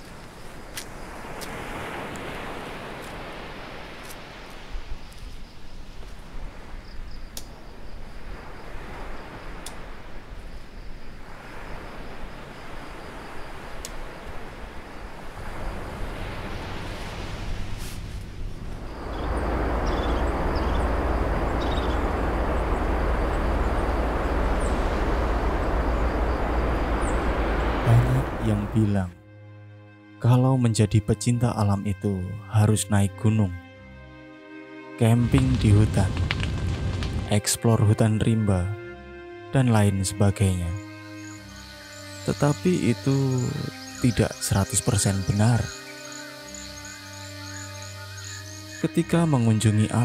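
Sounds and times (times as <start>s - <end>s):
wind rumble on microphone: 0.0s - 28.8s, 35.2s - 37.4s
outdoor rushing noise: 15.5s - 28.7s
high-pitched insect drone: 18.8s - 28.8s, 40.7s - 50.0s.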